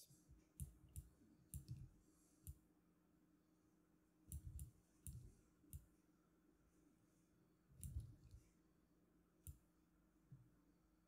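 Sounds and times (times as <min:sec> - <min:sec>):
faint steady low hum: 0:00.0 - 0:11.0
computer mouse clicks: 0:00.6 - 0:02.6, 0:04.3 - 0:05.9, 0:07.8 - 0:08.4.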